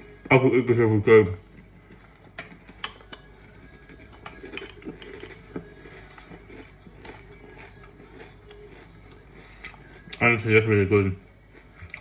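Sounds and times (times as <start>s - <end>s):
spoon clinking in ceramic bowl: 2.4s - 5.6s.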